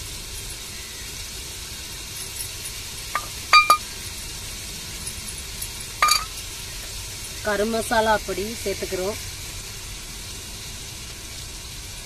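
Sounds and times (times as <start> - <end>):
metal bowl clinking on pot: 3.2 - 3.9, 6.0 - 6.5.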